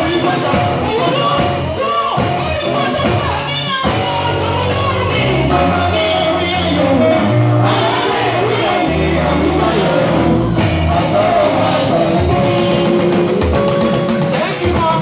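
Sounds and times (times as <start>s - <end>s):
woman singing into a microphone: 0.0s - 9.0s
amplified instrumental backing: 0.0s - 15.0s.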